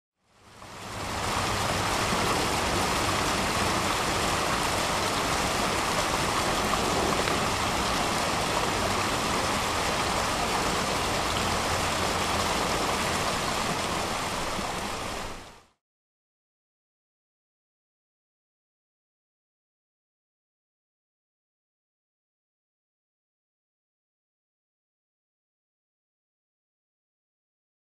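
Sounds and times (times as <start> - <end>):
water rushing down rock waterfall: 0.3 - 15.8.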